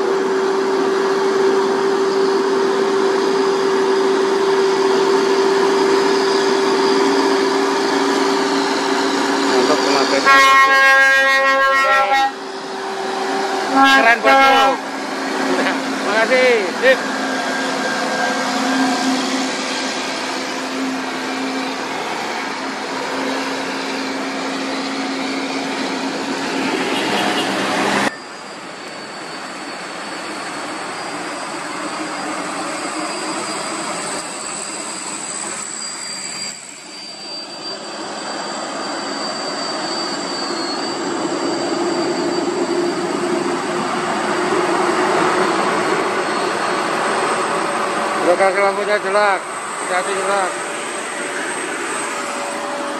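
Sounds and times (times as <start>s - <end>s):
steady high whine: 0.0s - 27.0s, 27.6s - 52.9s.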